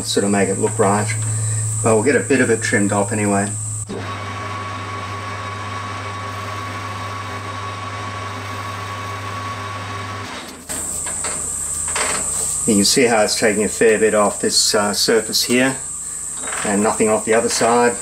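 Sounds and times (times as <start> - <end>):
high cutting whine: 0.0 - 9.6, 10.5 - 18.0
metal lathe humming: 0.0 - 18.0.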